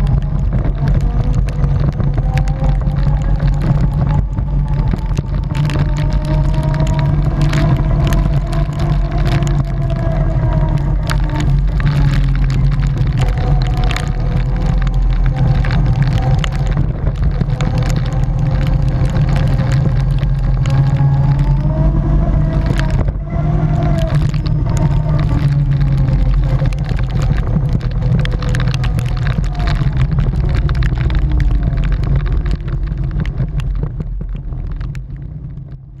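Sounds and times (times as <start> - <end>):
tyres ticking on wet gravel: 0.0 - 36.0
wind rumble on microphone: 0.0 - 36.0.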